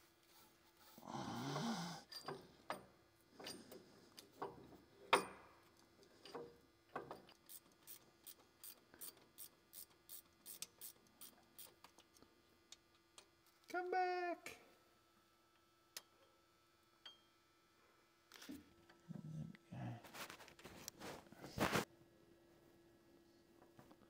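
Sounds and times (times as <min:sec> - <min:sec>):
ratchet wrench clicking: 0:07.3 - 0:12.0.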